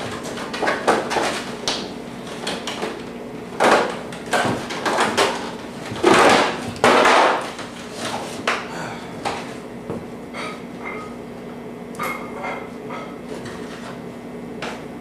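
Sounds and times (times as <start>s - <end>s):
knocks and clatter of movement: 3.6s - 8.4s.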